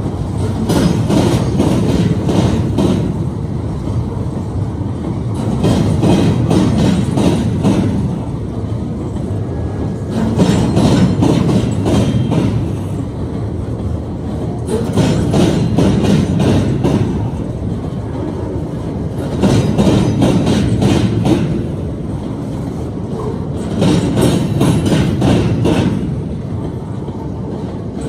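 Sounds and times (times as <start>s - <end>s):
train wheels clattering over crossing: 0.0s - 28.0s.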